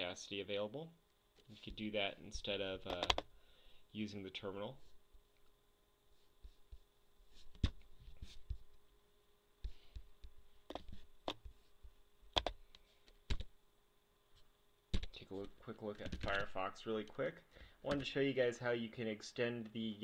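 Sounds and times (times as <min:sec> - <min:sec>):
faint steady hum: 0:00.0 - 0:20.0
laptop keys clicking: 0:02.9 - 0:03.3, 0:12.3 - 0:12.6.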